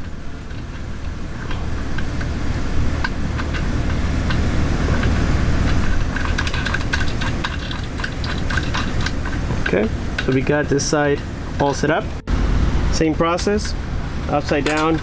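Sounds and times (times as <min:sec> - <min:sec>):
low rumble: 0:11.2 - 0:14.3.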